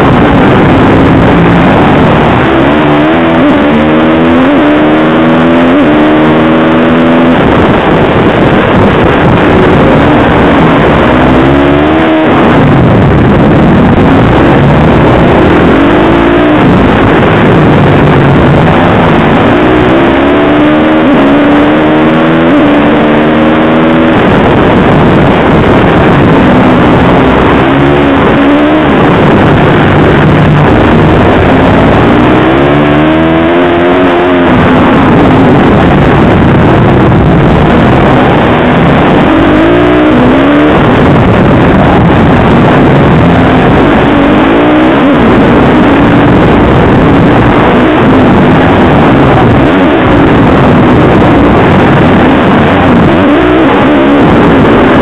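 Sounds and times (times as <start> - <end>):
dense noise: 0.0 - 55.0
motorcycle engine revving: 0.0 - 55.0.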